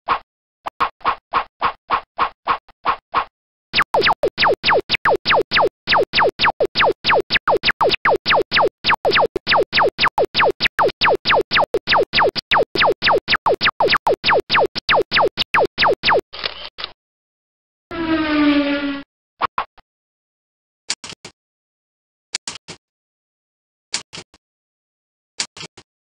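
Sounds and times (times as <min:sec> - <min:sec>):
electronic pew falling in pitch: 0:03.8 - 0:16.2.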